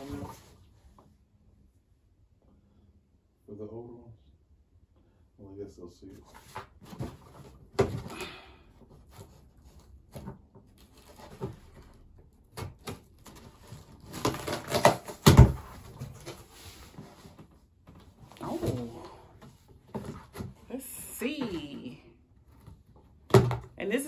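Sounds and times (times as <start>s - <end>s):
cardboard box rustling and knocking: 12.6s - 18.9s.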